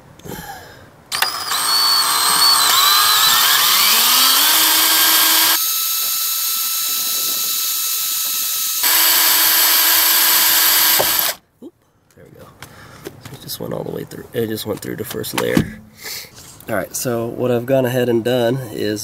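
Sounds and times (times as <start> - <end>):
electric drill drilling sheet metal: 1.1 - 11.4.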